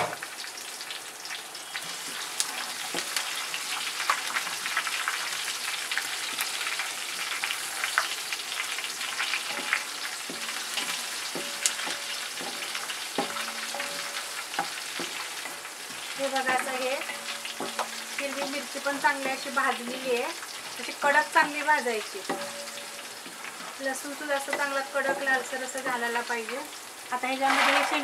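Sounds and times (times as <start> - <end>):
garlic sizzling in hot oil: 0.0 - 28.0
wooden spatula stirring: 8.8 - 26.2.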